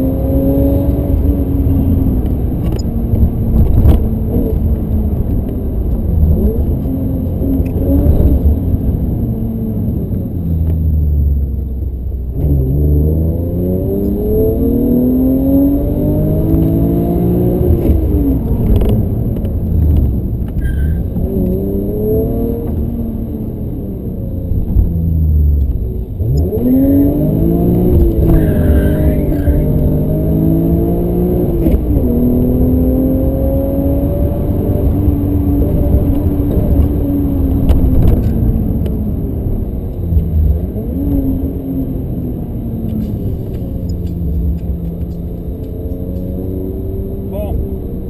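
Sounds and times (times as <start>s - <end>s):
car engine accelerating: 0.0s - 48.0s
road rumble: 0.0s - 48.0s.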